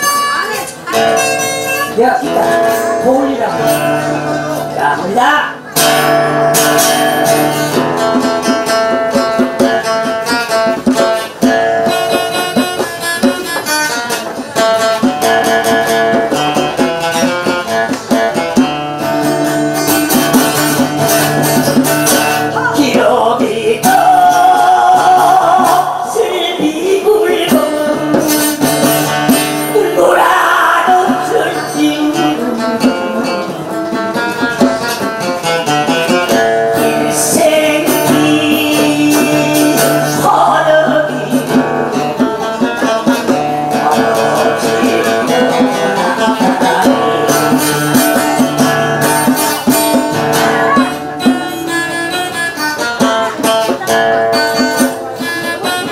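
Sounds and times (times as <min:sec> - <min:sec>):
acoustic guitar: 0:00.0 - 0:55.9
hand drum: 0:00.0 - 0:55.9
wavering voice-like melody: 0:43.7 - 0:48.8.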